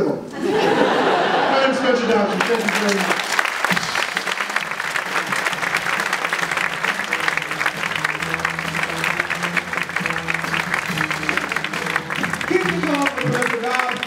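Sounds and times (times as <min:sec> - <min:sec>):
audience applauding: 0:00.5 - 0:14.0
play-off music: 0:03.7 - 0:14.0.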